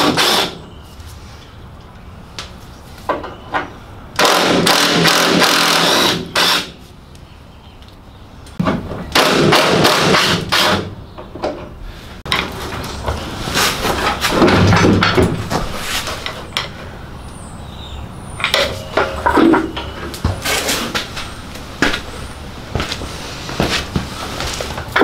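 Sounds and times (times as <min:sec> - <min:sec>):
metal tool banging and rattling: 0:13.9 - 0:16.8, 0:18.4 - 0:20.8
metal knocks: 0:14.1 - 0:16.8.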